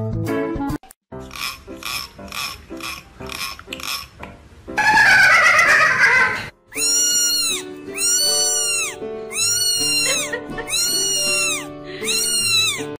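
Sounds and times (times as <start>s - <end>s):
background music with held notes: 0.0s - 13.0s
kitten meowing: 6.7s - 13.0s.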